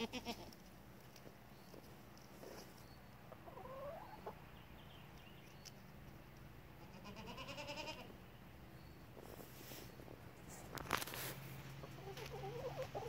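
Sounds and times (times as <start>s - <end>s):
goat bleating: 0.0s - 0.6s, 6.8s - 8.2s.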